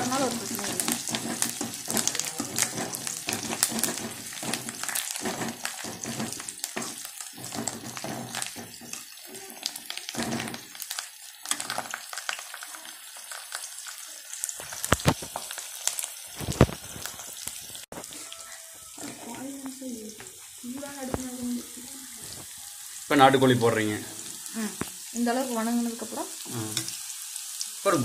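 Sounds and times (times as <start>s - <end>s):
metal ladle scraping pan: 0.0s - 10.8s
food sizzling in hot oil: 0.0s - 28.0s.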